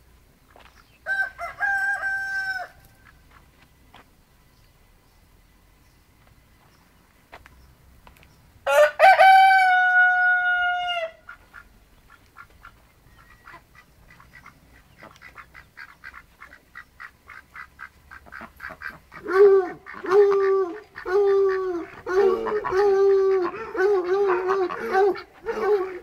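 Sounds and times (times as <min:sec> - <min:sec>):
rooster crowing: 0:01.0 - 0:02.9, 0:08.6 - 0:11.2
ducks quacking: 0:11.2 - 0:26.0.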